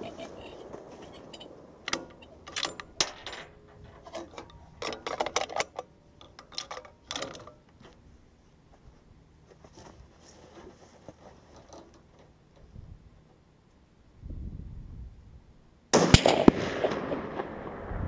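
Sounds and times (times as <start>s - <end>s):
rifle action metallic clicks: 1.2s - 7.8s.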